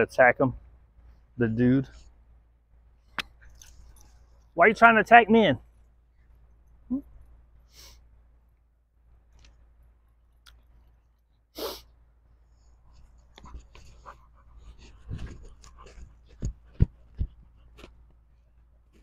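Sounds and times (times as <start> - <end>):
short breathy bursts: 7.6 - 8.1, 11.6 - 12.8.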